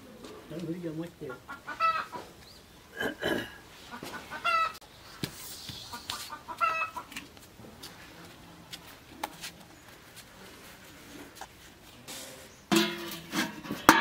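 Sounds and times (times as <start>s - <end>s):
chicken clucking: 1.2s - 3.1s, 3.7s - 4.8s, 5.7s - 7.4s.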